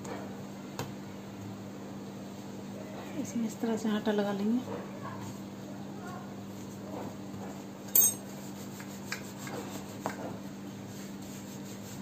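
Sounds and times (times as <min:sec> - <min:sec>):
utensil clink: 0:08.0 - 0:08.2.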